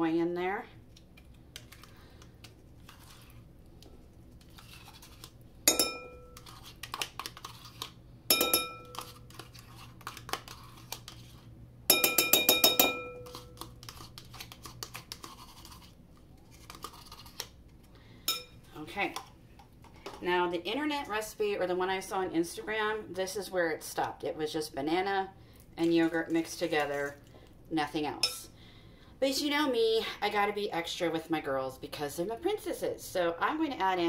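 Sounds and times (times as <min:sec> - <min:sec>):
spoon scraping plastic tub: 0:02.8 - 0:03.4, 0:04.4 - 0:05.4, 0:06.3 - 0:08.0, 0:08.8 - 0:11.5, 0:13.2 - 0:17.4
metal spoon clinking ceramic bowl: 0:05.7 - 0:06.4, 0:08.3 - 0:09.2, 0:11.9 - 0:13.4, 0:18.3 - 0:18.6.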